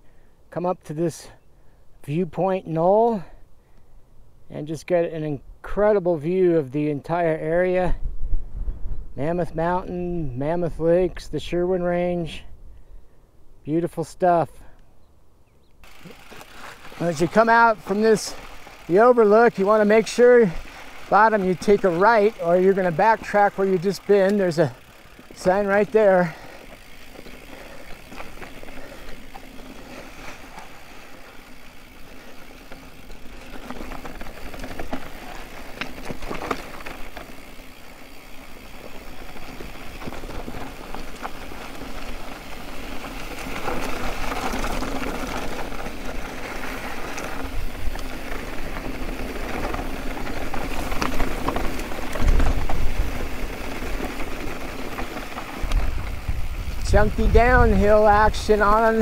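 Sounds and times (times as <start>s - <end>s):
bike rattling over rocks: 15.8s - 59.0s
tyres crunching over gravel: 15.8s - 59.0s.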